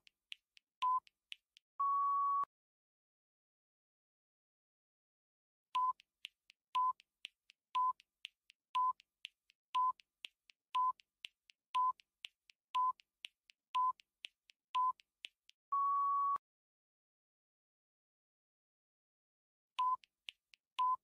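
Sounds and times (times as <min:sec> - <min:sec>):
quiet ticks: 0:00.0 - 0:01.6, 0:05.8 - 0:15.6, 0:19.8 - 0:21.0.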